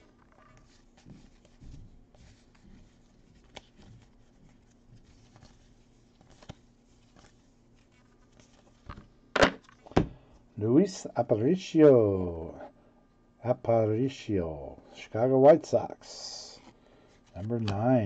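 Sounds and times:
cards rustling and sliding: 2.2 - 10.0, 16.1 - 18.0
card edges ticking: 17.4 - 18.0.

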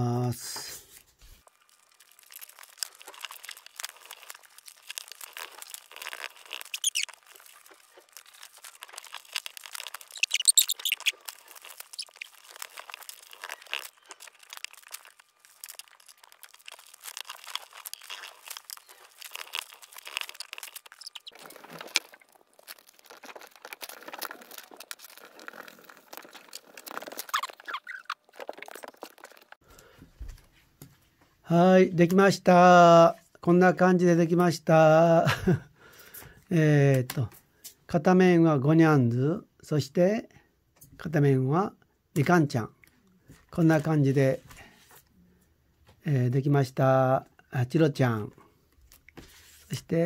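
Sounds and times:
paper rustling and crinkling: 0.8 - 29.6, 48.9 - 49.8.

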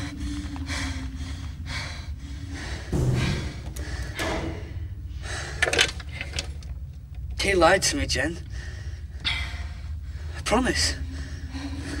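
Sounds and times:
person breathing hard: 0.0 - 6.4, 8.4 - 10.4.

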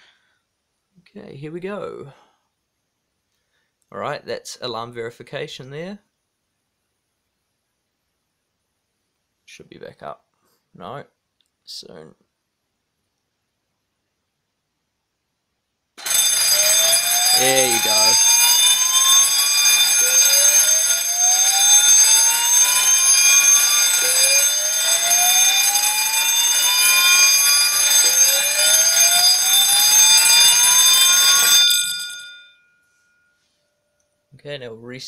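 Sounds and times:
fire bell ringing: 16.0 - 33.6
alarm speakers rising sweep tone: 16.5 - 31.4.

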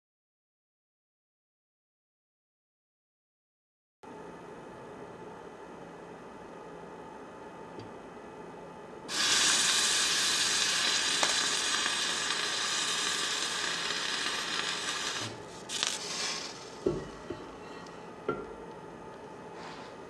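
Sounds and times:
water hissing on hot hotplate: 9.1 - 16.9.

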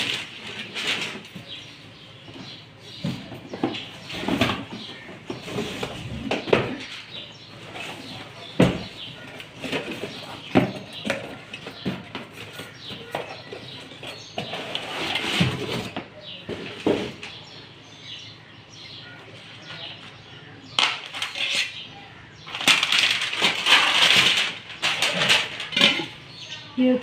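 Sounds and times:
cardboard and plastic rustling: 0.0 - 17.7, 22.4 - 26.4
boxes knocking against carton: 2.3 - 7.2, 7.8 - 17.5.

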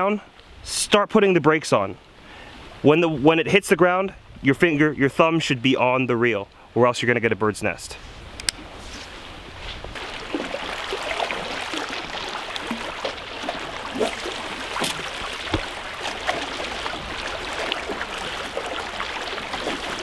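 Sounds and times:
water lapping against rocks: 9.7 - 20.0.

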